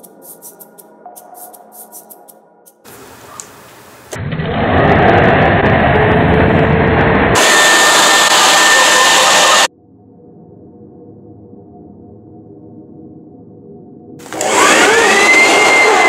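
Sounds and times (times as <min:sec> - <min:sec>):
electric leaf blower running: 0:07.4 - 0:09.7, 0:14.2 - 0:16.0.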